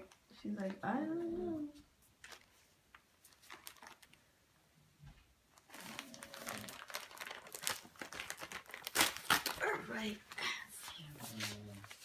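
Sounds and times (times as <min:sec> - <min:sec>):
wrapping paper crinkling: 0:02.2 - 0:04.3, 0:05.5 - 0:12.0.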